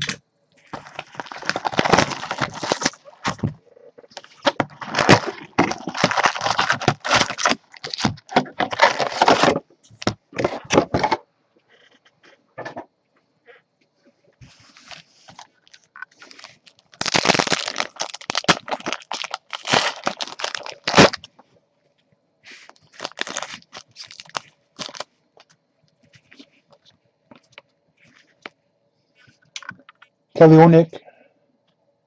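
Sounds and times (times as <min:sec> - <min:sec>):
foil packs tearing and crinkling: 0:00.7 - 0:09.6, 0:14.8 - 0:21.3, 0:22.6 - 0:25.1.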